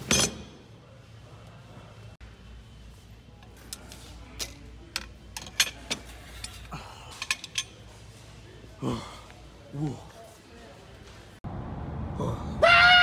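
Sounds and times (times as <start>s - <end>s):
metal wrenches clinking: 0.0s - 0.7s, 4.3s - 8.0s.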